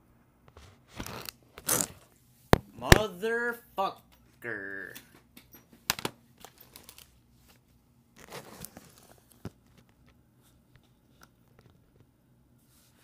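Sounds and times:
plastic crinkling: 6.4 - 7.2.

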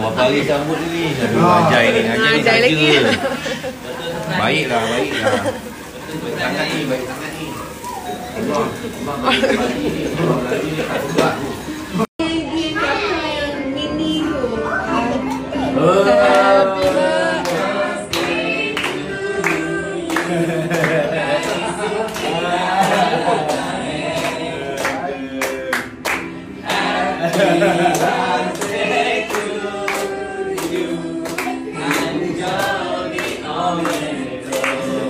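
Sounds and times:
group singing: 0.0 - 12.1, 12.7 - 35.0
people clapping along: 15.3 - 35.0.

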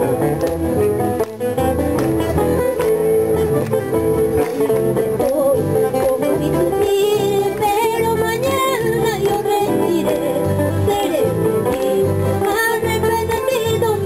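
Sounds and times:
acoustic guitar: 0.0 - 14.0
keyboard: 0.0 - 14.0
woman singing into a microphone: 4.9 - 14.0.

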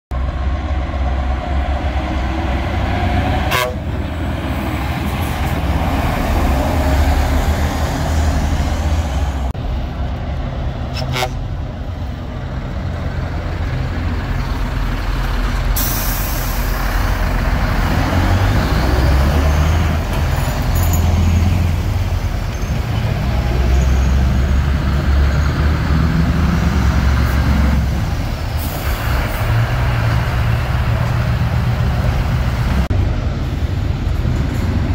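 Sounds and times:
trucks driving past: 0.1 - 34.9
short air hiss: 15.8 - 16.8.

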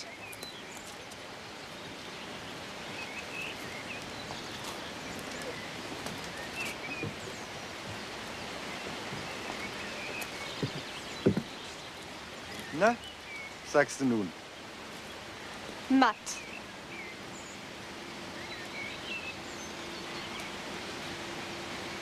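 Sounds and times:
steady background hiss: 0.0 - 22.0
soft knocks: 10.5 - 11.6.

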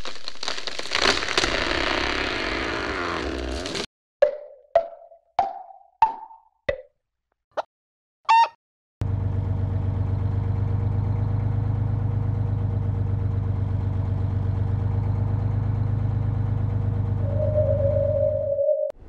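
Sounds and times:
cartoon bus engine chugging: 9.0 - 19.0
steady high tone: 17.2 - 18.9.

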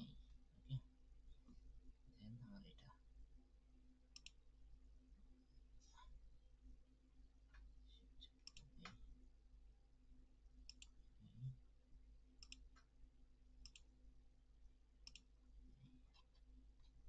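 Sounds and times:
low steady hum: 0.0 - 17.0
computer mouse clicks: 4.2 - 4.4, 8.3 - 9.0, 10.7 - 11.0, 12.4 - 12.9, 13.6 - 13.9, 15.0 - 15.3.

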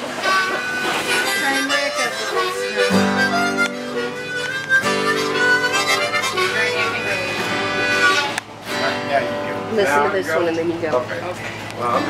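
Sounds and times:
harmonica playing fast tune: 0.0 - 10.3.

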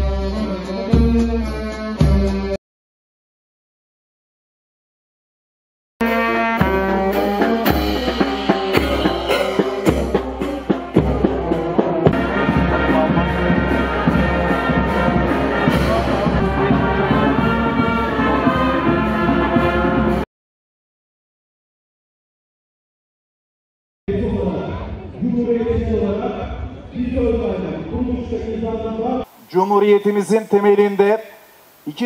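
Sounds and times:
cymbal clashes: 6.0 - 10.9
drum beats: 6.0 - 20.2
marching band brass tune: 6.0 - 20.3.

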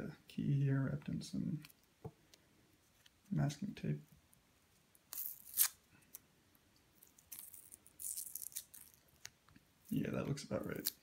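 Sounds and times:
tape crinkling and rustling: 4.1 - 11.0.

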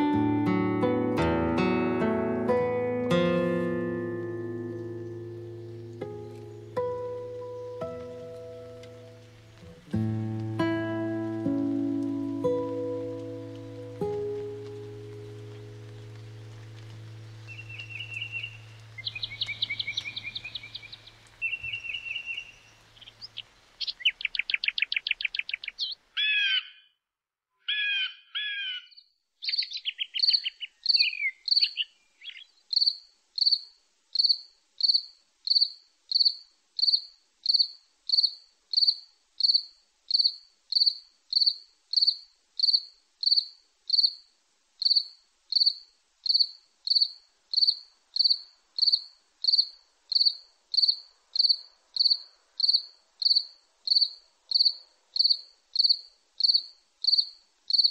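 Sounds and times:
bird calls and trills: 15.2 - 26.9, 27.6 - 33.6
cricket chirping: 29.4 - 57.9.

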